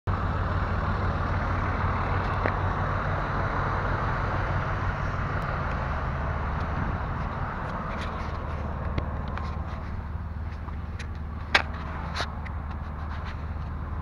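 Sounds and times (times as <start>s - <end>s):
engine idling drone: 0.1s - 14.0s.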